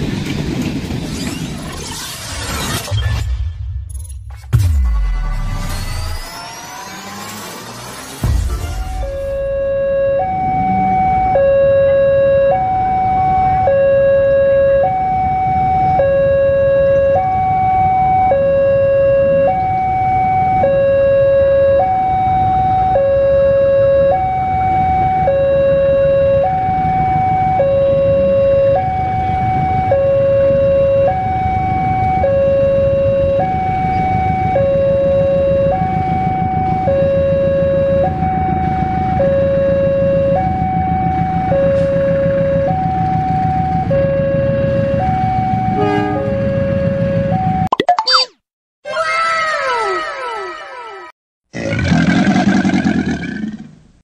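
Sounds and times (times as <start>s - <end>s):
two-tone siren: 5.2s - 48.3s.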